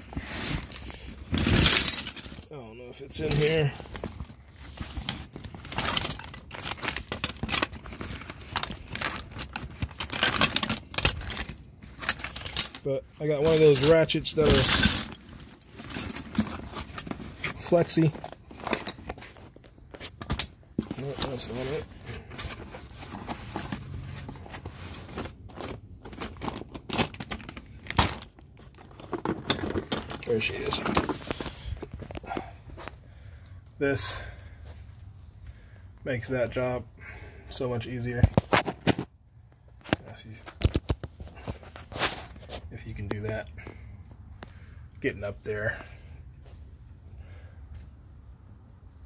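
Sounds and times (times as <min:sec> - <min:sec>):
metal tools clinking: 0:00.3 - 0:24.4, 0:25.0 - 0:32.5.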